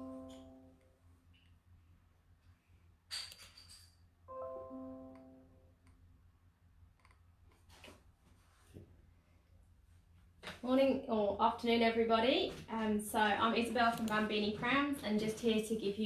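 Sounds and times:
soft electronic chime: 0.0 - 0.8, 4.3 - 5.7.

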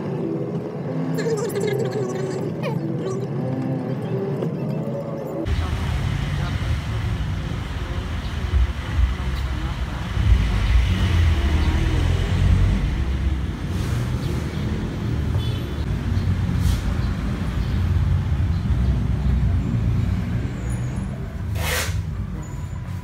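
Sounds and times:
road traffic rumble: 0.0 - 23.0
short sharp hiss: 21.6 - 22.1.

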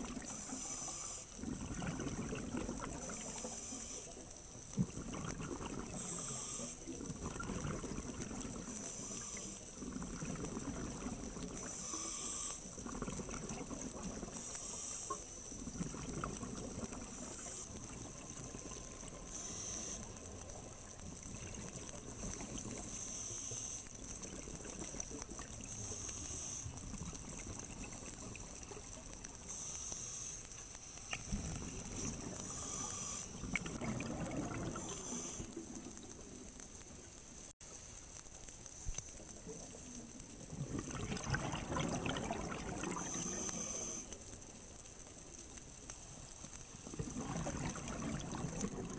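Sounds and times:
regulator inhalation hiss: 0.3 - 1.4, 3.0 - 4.2, 6.0 - 6.9, 8.7 - 9.7, 11.6 - 12.7, 14.3 - 15.4, 19.3 - 20.1, 29.5 - 33.4
exhaled bubbles burbling: 1.4 - 3.5, 4.7 - 6.3, 7.0 - 8.8, 9.7 - 11.7, 12.7 - 14.4, 15.5 - 19.2, 24.2 - 25.7, 31.3 - 36.1, 39.8 - 44.0, 46.7 - 48.9.

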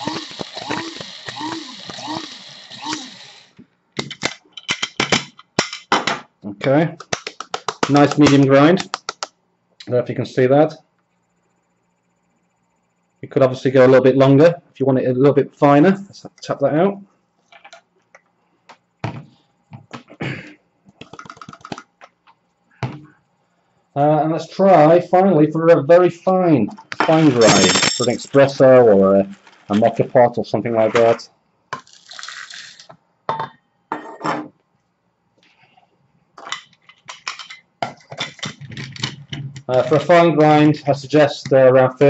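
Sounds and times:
metal scoop clinking: 27.2 - 28.6.

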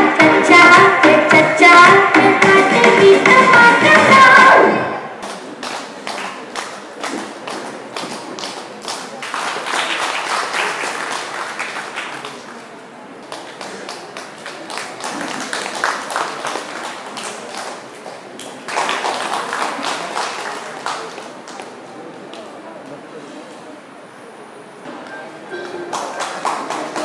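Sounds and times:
audience clapping: 5.2 - 22.4, 25.6 - 27.0.

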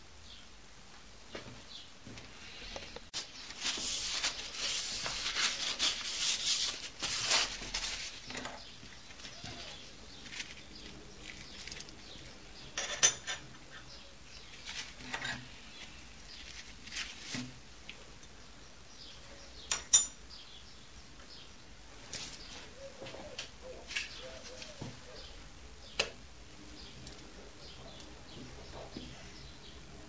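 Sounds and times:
rustling and scraping of tools: 1.4 - 17.6.

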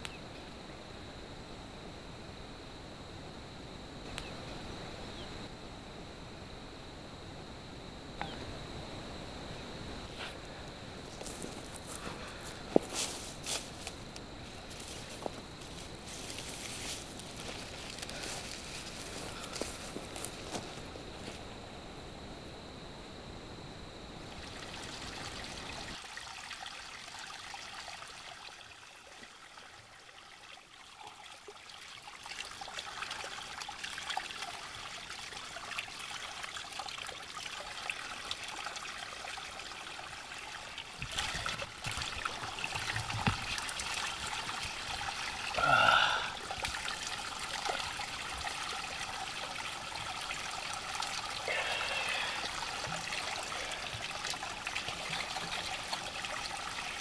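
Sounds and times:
water trickling: 12.9 - 20.6, 24.3 - 57.0.

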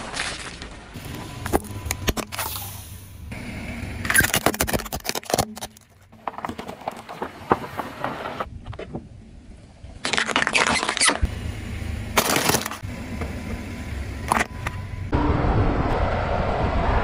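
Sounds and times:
car tyre crushing objects: 4.0 - 9.1, 10.0 - 11.3, 12.1 - 12.9.

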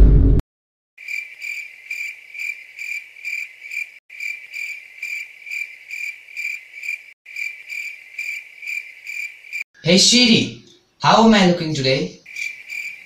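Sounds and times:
crickets chirping: 1.0 - 9.7, 12.2 - 13.0.

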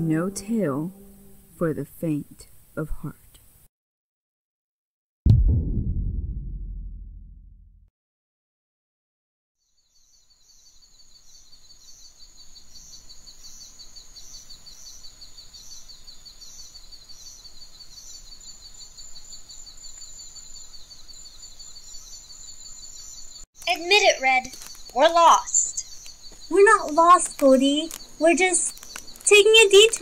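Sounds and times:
crickets chirping: 9.8 - 30.0.

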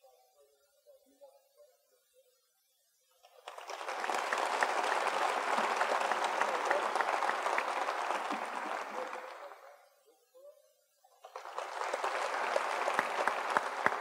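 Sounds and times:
audience applauding: 3.3 - 9.7, 11.2 - 14.0.

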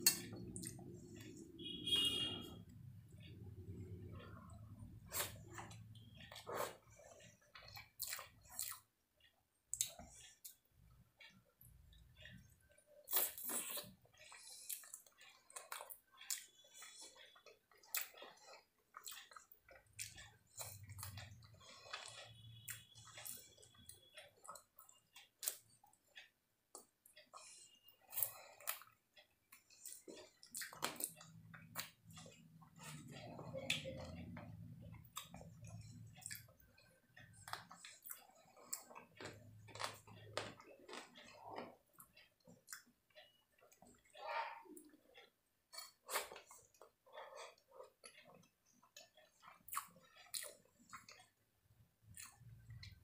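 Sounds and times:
person chewing: 0.0 - 53.0.

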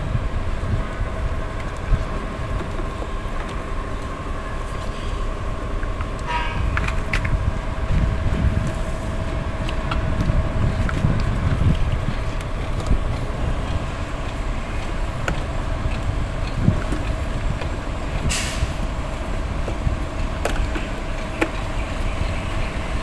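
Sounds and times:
diesel truck engine running: 0.0 - 23.0
air hiss: 18.3 - 18.8.

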